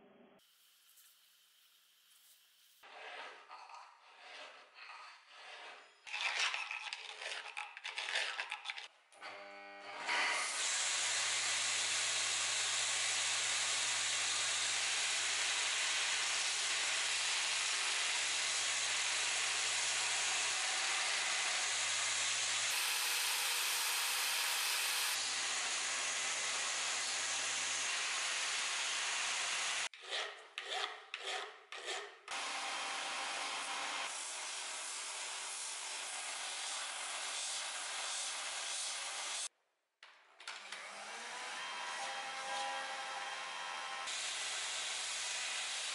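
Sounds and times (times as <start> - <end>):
belt grinder grinding steel: 10.0 - 34.1.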